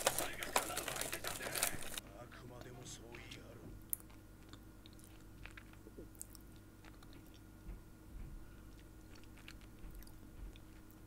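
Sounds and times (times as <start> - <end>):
small crunching clicks: 0.0 - 2.0
faint chewing of snack: 3.8 - 11.0.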